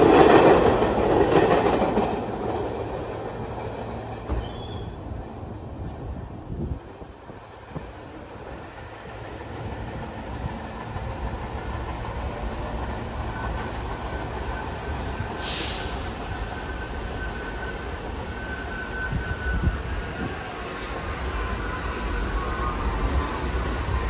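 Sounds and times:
subway trains rumbling on tracks: 0.0 - 24.0
high squeal from wheels: 2.7 - 6.0, 12.9 - 24.0
short burst of hiss: 15.4 - 16.5.

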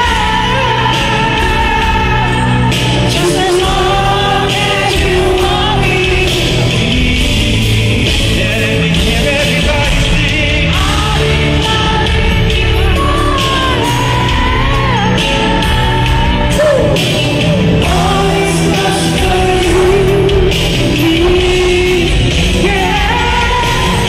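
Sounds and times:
live pop band playing: 0.0 - 24.0
man singing into a microphone: 0.0 - 24.0
crowd yelling: 10.8 - 21.3.

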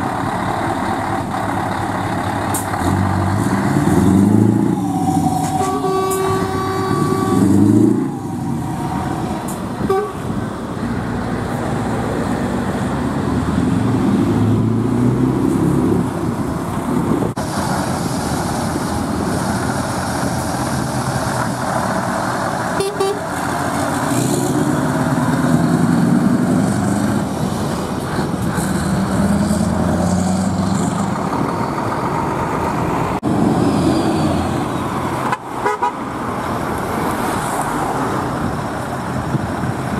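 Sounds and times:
truck engines rumbling past: 0.0 - 39.9
truck horn chord: 5.6 - 7.6, 9.8 - 10.2.

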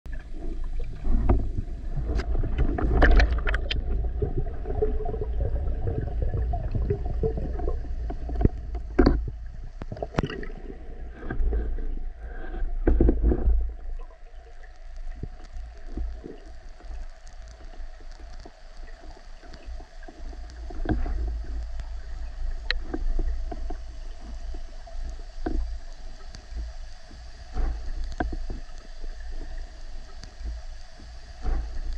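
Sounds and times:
muffled underwater rumble: 0.1 - 31.9
sharp clicks and knocks: 1.1 - 3.9, 8.1 - 10.4.

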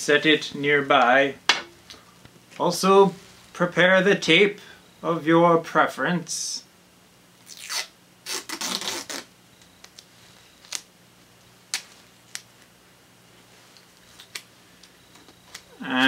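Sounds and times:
faint low hum: 0.0 - 16.0
tape ripping off roll: 7.4 - 9.9
tape clicks and crackles: 8.5 - 12.8, 13.7 - 15.8.

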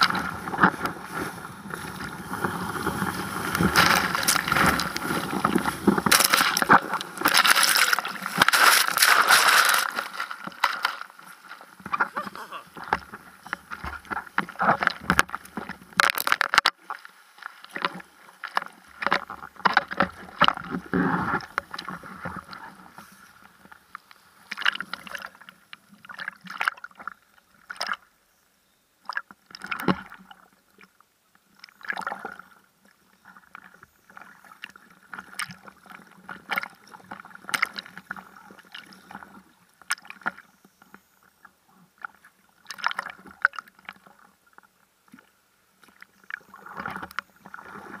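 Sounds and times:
ocean water splashing and gurgling: 0.0 - 23.6, 45.1 - 48.0.

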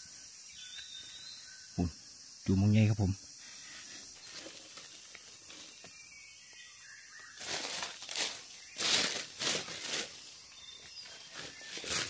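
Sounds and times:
dry leaves and brush rustling: 3.4 - 6.1, 7.2 - 12.0.

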